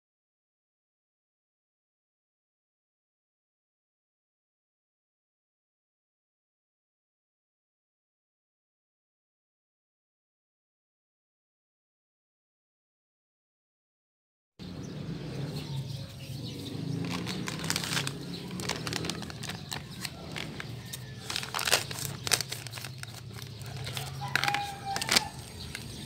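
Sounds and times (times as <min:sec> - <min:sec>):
plastic bag crinkling: 0:17.0 - 0:26.0.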